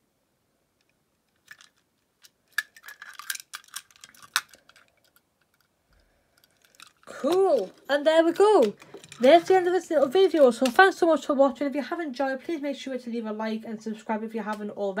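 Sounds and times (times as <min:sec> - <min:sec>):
toy cars clicking and scraping: 0:00.8 - 0:11.3.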